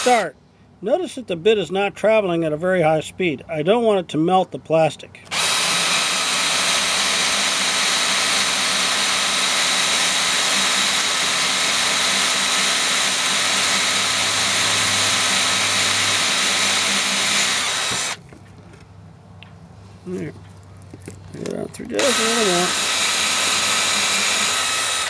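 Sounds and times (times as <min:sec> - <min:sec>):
drill boring through plastic: 0:00.0 - 0:00.3, 0:05.3 - 0:18.2, 0:21.9 - 0:25.0.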